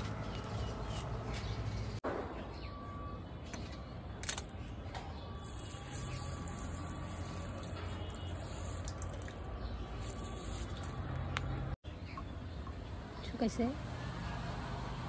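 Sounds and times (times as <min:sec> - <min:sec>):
hose water spraying: 0:05.4 - 0:09.3, 0:10.0 - 0:11.0.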